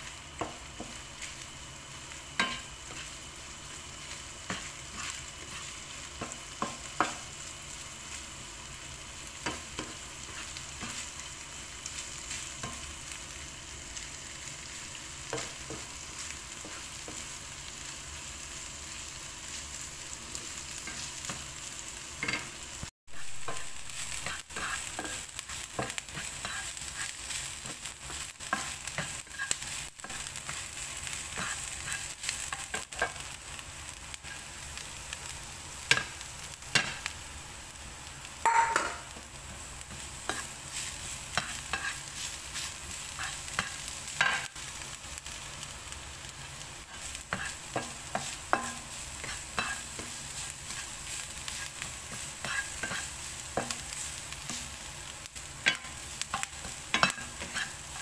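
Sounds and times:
food frying in a pan: 0.0s - 58.0s
onion sizzling: 0.0s - 58.0s
spatula scraping a pan: 2.3s - 3.3s, 4.1s - 7.3s, 23.2s - 33.3s, 38.4s - 44.6s, 46.5s - 58.0s
spatula knocking against pan: 38.5s - 39.0s.

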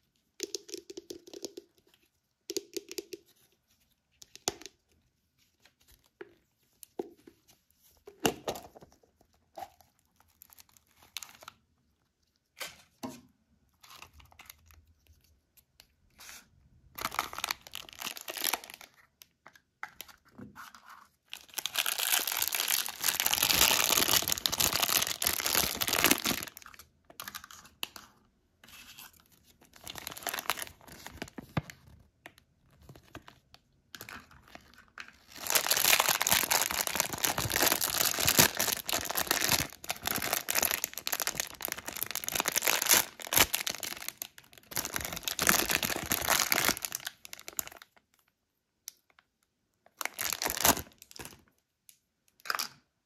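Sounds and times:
plastic foil packet crinkling: 17.0s - 19.0s, 21.3s - 27.6s, 29.6s - 31.5s, 34.0s - 47.8s, 50.0s - 51.4s.

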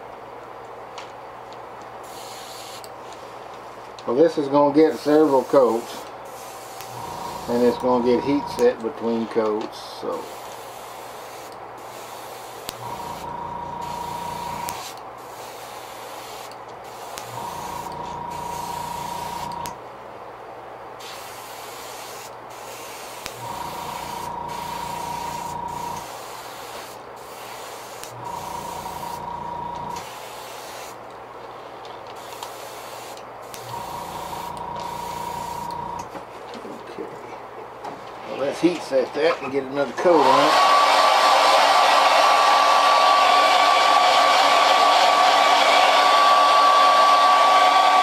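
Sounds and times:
airbrush hissing: 2.0s - 2.9s, 4.9s - 8.7s, 10.1s - 19.7s, 21.0s - 31.0s, 32.2s - 36.0s
compressor motor humming: 6.7s - 8.8s, 12.6s - 14.9s, 16.9s - 19.8s, 23.2s - 26.1s, 28.0s - 30.1s, 33.5s - 36.1s.

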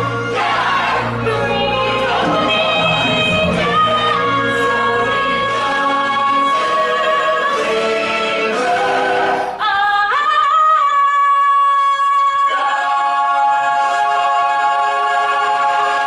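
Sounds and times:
chorus and orchestra chords: 1.0s - 6.0s
woman belting high note: 1.9s - 4.4s.

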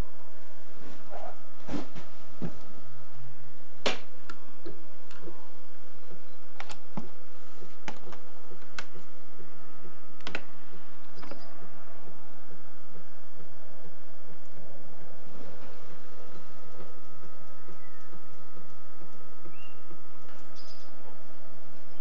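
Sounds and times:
faint electrical hum: 0.0s - 22.0s.

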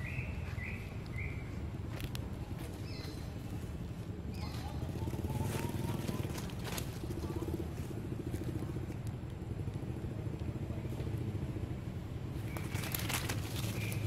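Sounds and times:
steady low rumble: 0.0s - 14.0s
leaf litter rustling: 5.0s - 7.5s, 12.5s - 14.0s.

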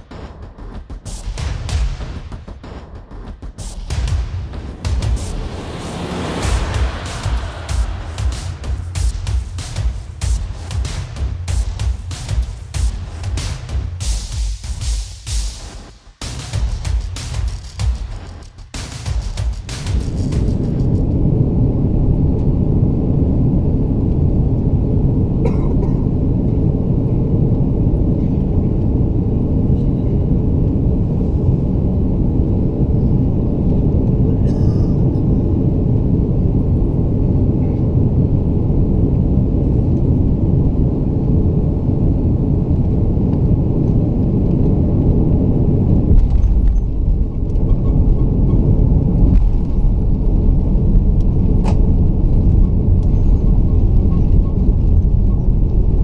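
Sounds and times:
thrust reverser roar: 0.0s - 14.8s
airplane cabin rumble: 0.0s - 15.4s, 16.6s - 56.0s.

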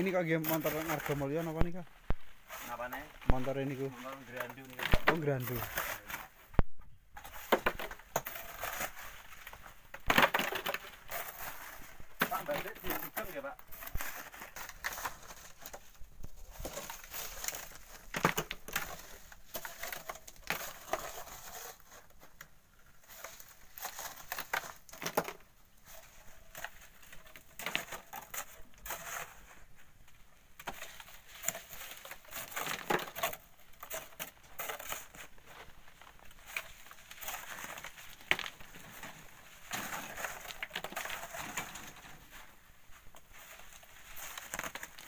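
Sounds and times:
hoe scraping into sand and gravel: 0.0s - 1.7s, 2.4s - 6.4s, 7.2s - 9.7s, 10.6s - 15.6s.

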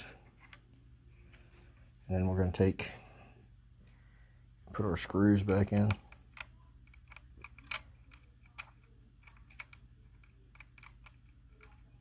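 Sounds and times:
fingers clicking and tapping screw: 5.7s - 12.0s.

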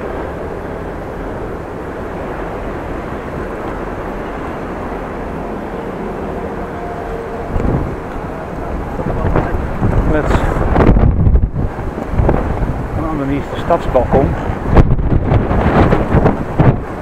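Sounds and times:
wind buffeting microphone: 0.0s - 17.0s.

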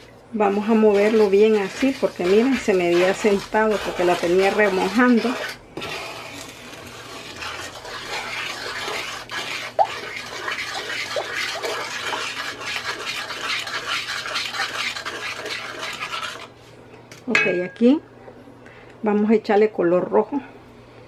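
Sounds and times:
wooden spoon scraping pan: 0.4s - 16.6s.

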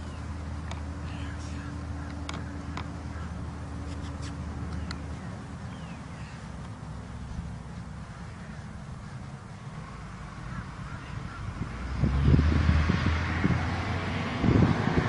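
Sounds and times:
low engine hum: 0.0s - 15.0s
sharp clicks: 3.8s - 5.0s.

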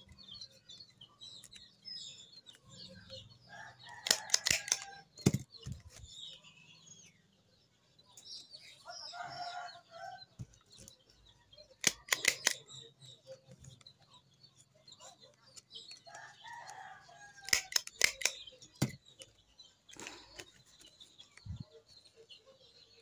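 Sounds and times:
small birds chirping: 0.0s - 23.0s
stapler clicks: 4.0s - 5.5s, 11.8s - 12.6s, 17.4s - 19.0s.

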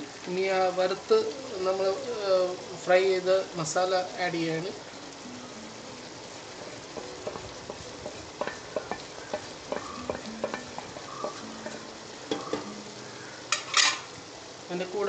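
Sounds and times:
food sizzling: 0.0s - 15.0s
spoon scraping a pan: 8.4s - 12.7s, 13.5s - 14.1s.

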